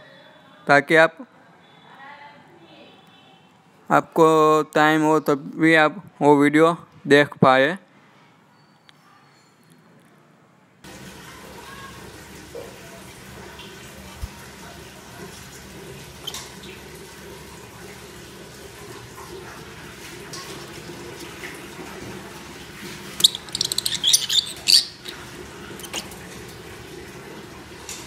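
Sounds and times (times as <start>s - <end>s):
bird beak clicks: 23.2s - 24.8s
shrill bird chirping: 23.2s - 25.2s.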